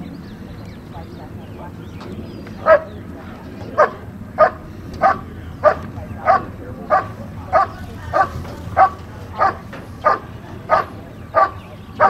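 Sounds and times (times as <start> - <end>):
dog barking sharply: 3.8 - 11.6.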